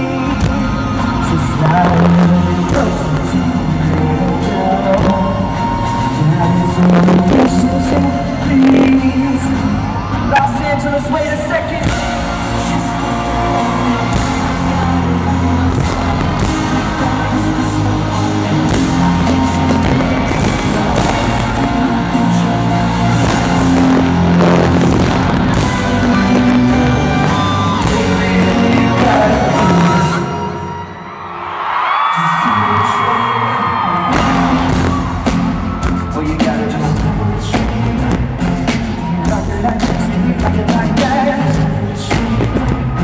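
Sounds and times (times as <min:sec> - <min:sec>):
live pop band music: 0:00.0 - 0:43.0
heavy sustained bass notes: 0:12.1 - 0:30.2.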